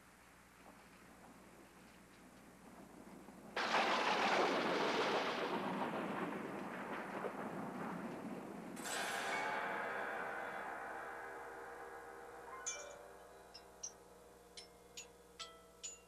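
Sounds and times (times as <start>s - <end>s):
chimes ringing: 9.2s - 16.0s.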